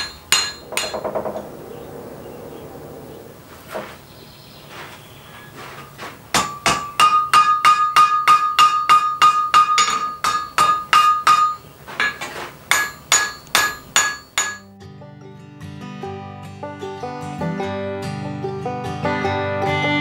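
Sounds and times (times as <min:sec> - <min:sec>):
hammer ringing on anvil: 0:00.0 - 0:01.2, 0:06.4 - 0:14.7.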